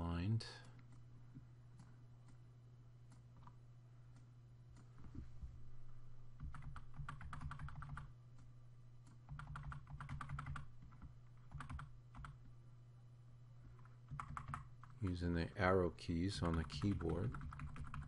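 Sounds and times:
keyboard keys tapping: 6.4s - 8.1s, 9.3s - 12.4s, 14.1s - 15.0s, 16.4s - 18.0s.

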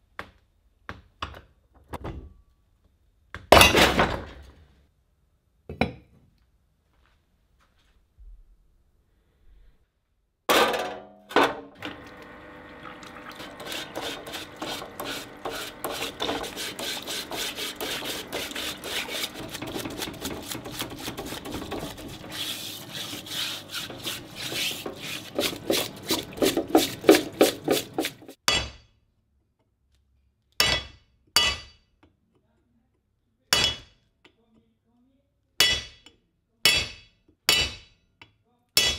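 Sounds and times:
brush scrubbing metal: 12.9s - 28.4s.

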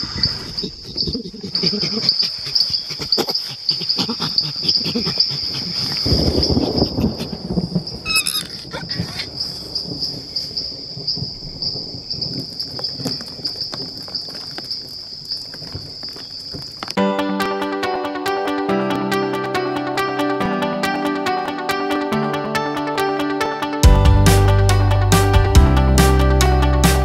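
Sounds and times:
insects trilling: 0.0s - 17.0s
burst of chirps: 7.8s - 16.5s.

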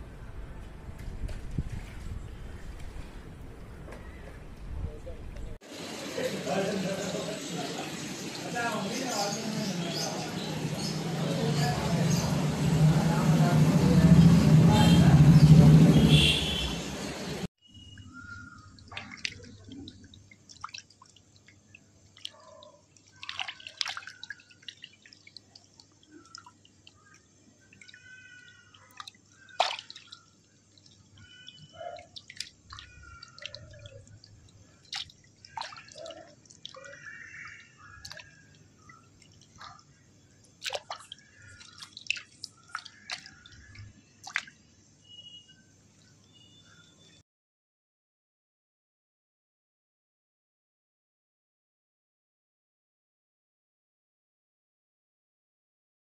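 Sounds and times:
water dripping and splashing: 5.6s - 12.9s, 17.9s - 45.3s
fish flapping in shallow water: 18.3s - 44.7s
faint high chirps: 31.1s - 34.1s, 45.0s - 47.2s.

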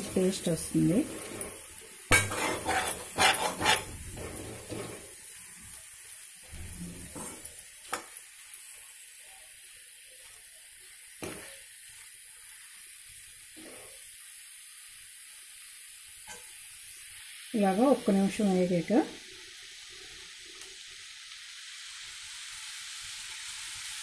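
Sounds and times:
spoon stirring and scraping a pan: 0.0s - 5.2s, 6.6s - 8.2s
faint frying sizzle: 0.0s - 24.0s.

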